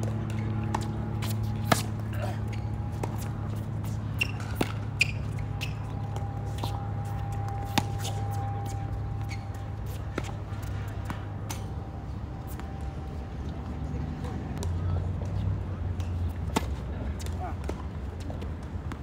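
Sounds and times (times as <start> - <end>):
tennis balls struck by rackets: 0.0 - 13.0, 14.2 - 18.0
steady low hum: 0.0 - 19.0.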